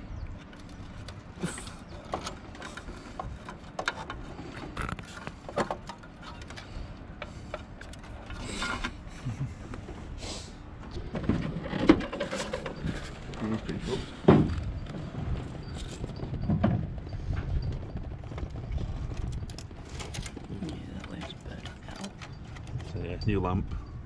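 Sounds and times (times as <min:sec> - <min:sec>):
wires and plastic parts clicking: 0:18.3 - 0:23.0.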